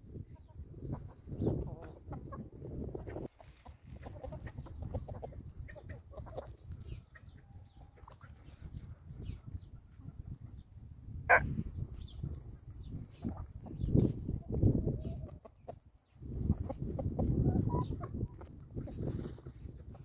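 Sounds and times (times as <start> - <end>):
chickens clucking: 0.1 - 20.0.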